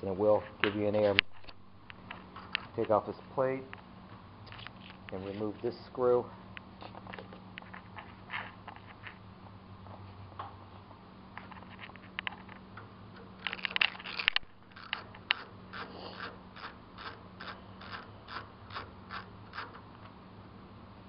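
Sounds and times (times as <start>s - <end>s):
screwdriver clicks and scrapes: 13.4s - 19.8s.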